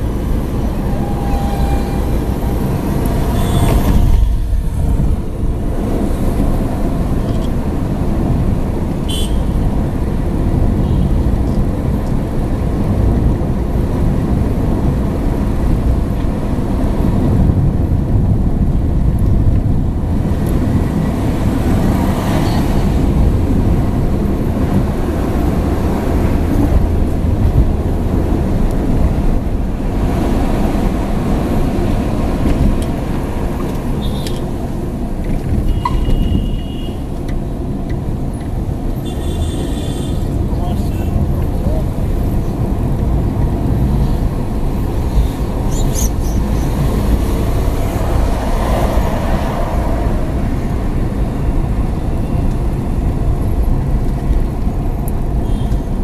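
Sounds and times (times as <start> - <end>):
car engine and tyre rumble: 0.0 - 56.0
traffic noise: 0.0 - 56.0
car horn toot: 3.2 - 4.2, 9.1 - 9.6, 35.6 - 37.1, 39.0 - 40.3.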